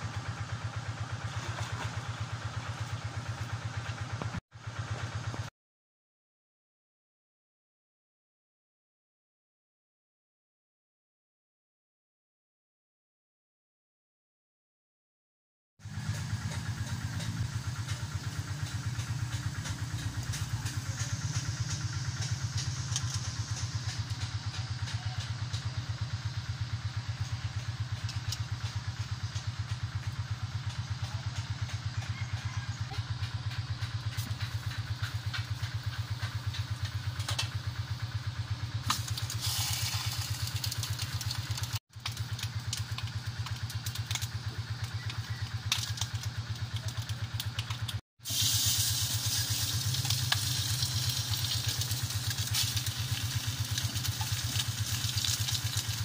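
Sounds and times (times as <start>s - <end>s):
small engine idling: 0.0s - 5.5s, 15.8s - 56.0s.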